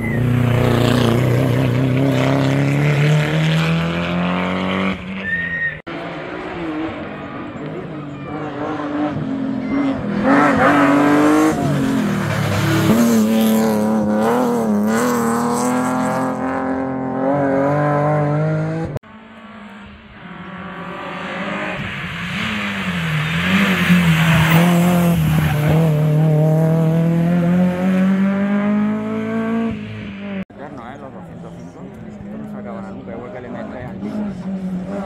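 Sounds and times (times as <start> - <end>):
rally car engine at hard throttle: 0.0 - 5.3, 5.9 - 35.0
car approaching: 0.0 - 35.0.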